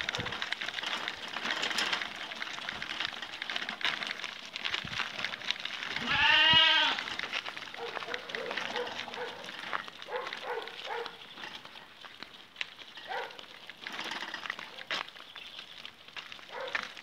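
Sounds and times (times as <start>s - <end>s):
footsteps on gravel: 0.0s - 17.0s
goat bleating: 6.0s - 7.1s.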